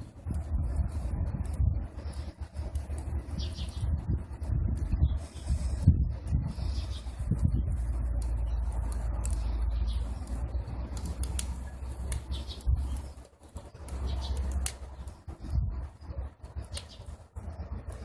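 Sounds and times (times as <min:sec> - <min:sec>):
fire crackling: 0:00.0 - 0:18.0
stove fire rumble: 0:00.0 - 0:18.0.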